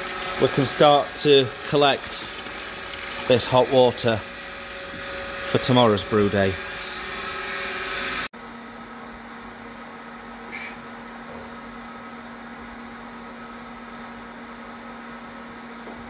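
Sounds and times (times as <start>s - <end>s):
pump humming: 0.0s - 8.3s.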